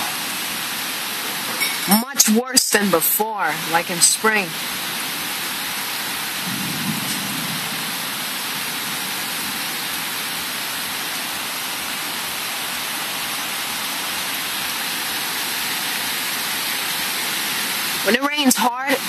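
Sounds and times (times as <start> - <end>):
heavy rain pouring: 0.0 - 19.0.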